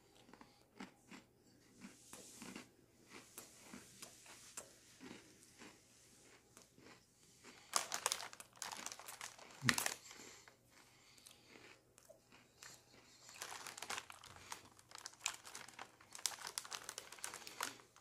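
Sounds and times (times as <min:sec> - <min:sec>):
chewing cookie: 0:00.0 - 0:18.0
crinkly crackling: 0:05.0 - 0:18.0.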